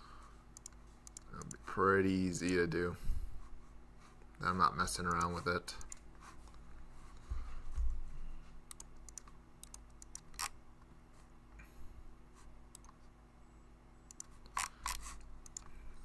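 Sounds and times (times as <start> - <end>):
computer keyboard typing: 0.6 - 1.6, 8.7 - 10.5, 14.1 - 15.7.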